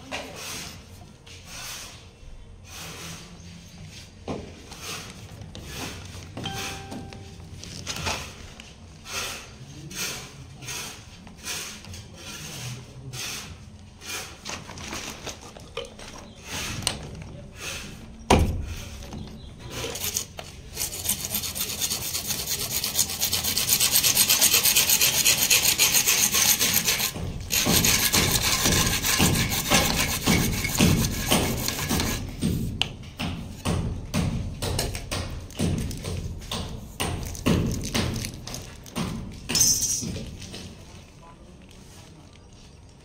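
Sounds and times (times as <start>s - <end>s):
hacksaw blade sawing pipe: 19.7s - 32.5s
rubbing and handling pipe: 19.7s - 32.8s.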